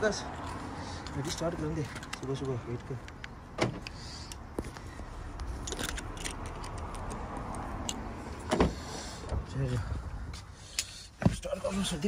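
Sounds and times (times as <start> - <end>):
light clicks and scuffs of handling: 0.2 - 8.0
car door clunk: 3.5 - 3.9, 8.4 - 9.4.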